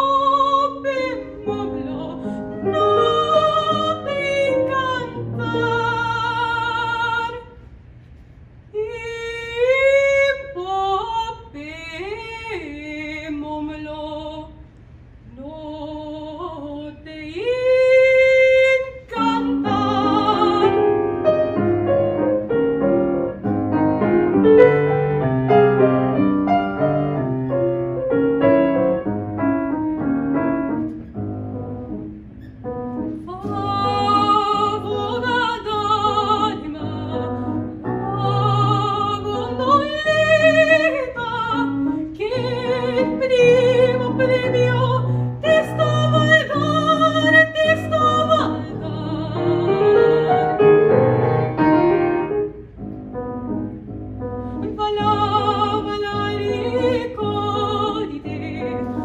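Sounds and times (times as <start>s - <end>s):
operatic female singing: 0.0s - 7.5s, 8.8s - 14.5s, 15.3s - 20.9s, 33.3s - 50.6s, 54.6s - 59.0s
grand piano: 0.0s - 14.5s, 15.4s - 59.0s.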